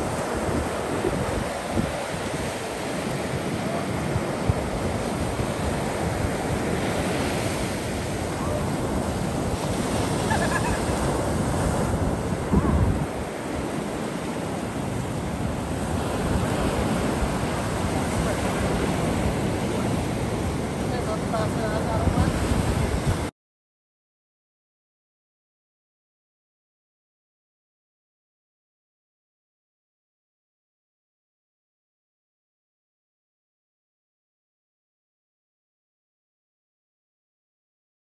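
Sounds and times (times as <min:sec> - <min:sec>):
ocean surf breaking on beach: 0:00.0 - 0:23.3
wind buffeting microphone: 0:00.0 - 0:23.3.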